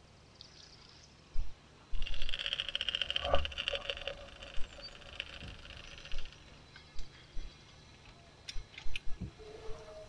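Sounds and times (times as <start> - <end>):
spinning reel whirring tick: 2.0 - 6.5.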